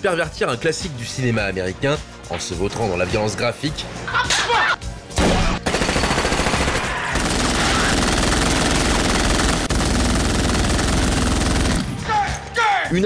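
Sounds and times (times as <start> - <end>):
automatic gunfire: 5.3 - 11.9.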